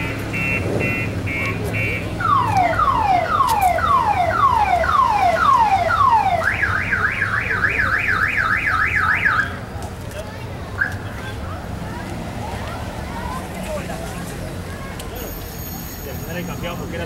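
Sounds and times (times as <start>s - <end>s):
car alarm siren: 0.0s - 9.6s.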